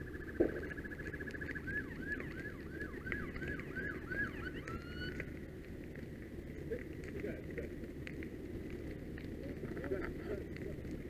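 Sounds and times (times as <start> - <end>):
emergency vehicle siren: 0.0 - 5.8
low rumble: 0.0 - 11.0.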